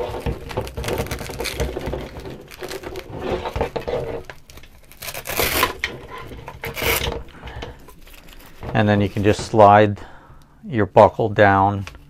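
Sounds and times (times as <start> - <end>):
strap pulled rasp: 0.0 - 9.4
straps rustling: 0.0 - 10.1.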